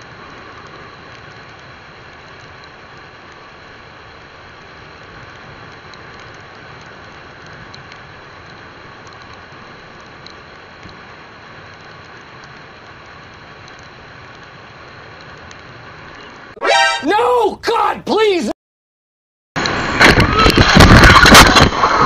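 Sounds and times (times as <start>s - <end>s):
faint ticks: 0.6s - 3.5s, 4.1s - 16.4s
rushing wind: 19.6s - 22.0s.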